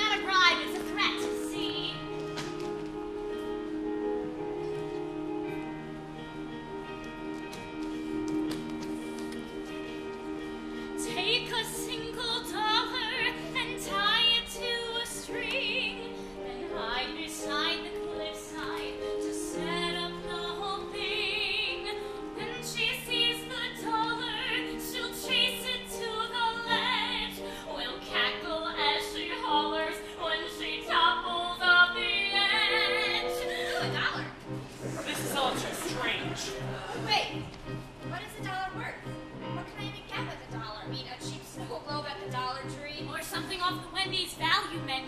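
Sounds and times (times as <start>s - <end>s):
held accompaniment chords: 0.0s - 45.0s.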